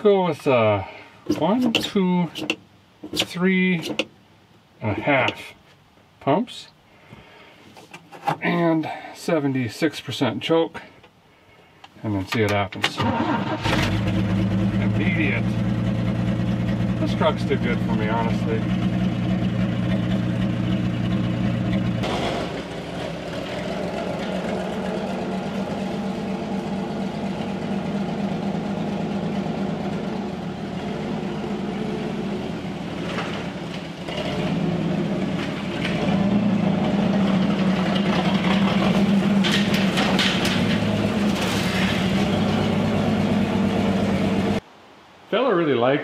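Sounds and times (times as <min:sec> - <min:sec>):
pickup truck engine running: 0:13.7 - 0:44.6.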